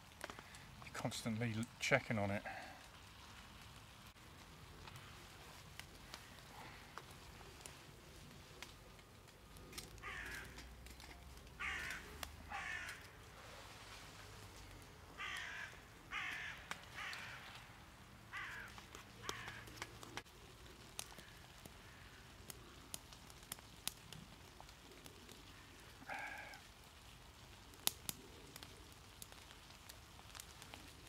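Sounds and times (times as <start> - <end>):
crow cawing: 10.0 - 10.7, 11.6 - 13.2, 15.1 - 17.7, 18.3 - 19.8, 21.0 - 22.3, 25.5 - 26.7.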